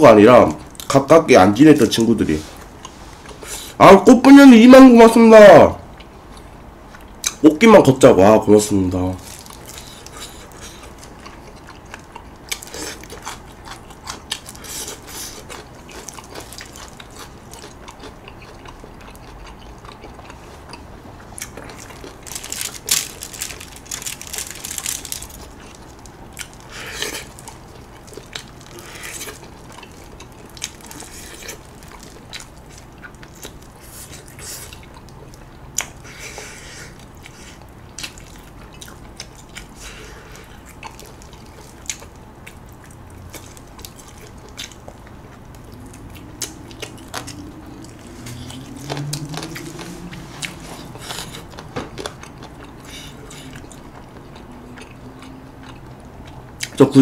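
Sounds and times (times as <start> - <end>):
biting and chewing: 9.2 - 56.8
rustling of foil tray: 21.8 - 32.9.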